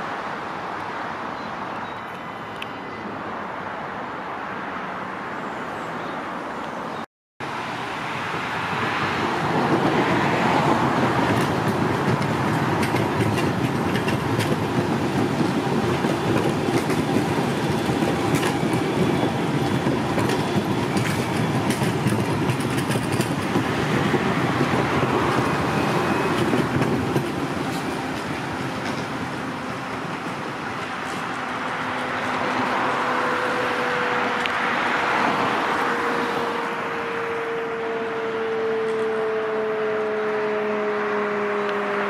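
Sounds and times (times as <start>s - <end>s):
tram rolling rumble on rails: 6.2s - 39.3s.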